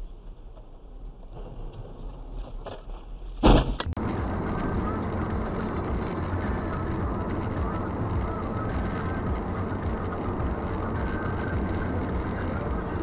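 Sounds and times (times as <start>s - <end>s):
car driving on snowy road: 2.9s - 13.0s
car collision bang: 3.4s - 4.0s.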